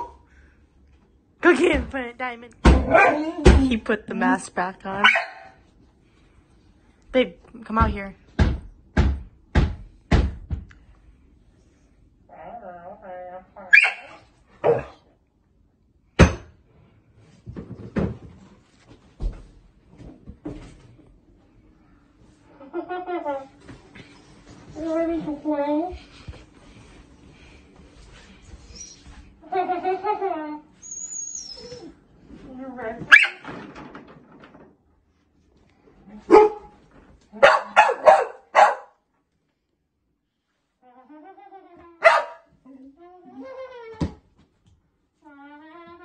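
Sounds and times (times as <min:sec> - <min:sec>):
dog barking: 0:02.8 - 0:03.3, 0:05.0 - 0:05.6, 0:13.7 - 0:15.0, 0:36.3 - 0:36.7, 0:37.4 - 0:39.0, 0:42.0 - 0:42.5.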